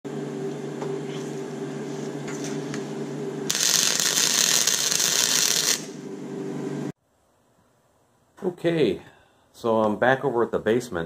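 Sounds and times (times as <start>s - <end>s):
welder humming: 0.1s - 7.0s
welding arc crackling and hissing: 3.5s - 6.0s.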